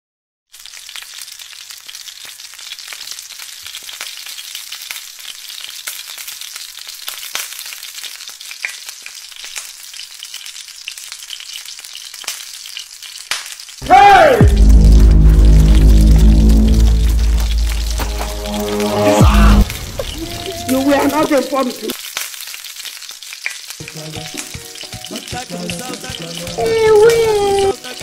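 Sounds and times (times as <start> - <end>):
plantain frying in hot oil: 0.5 - 28.0
music: 13.8 - 19.8, 23.8 - 28.0.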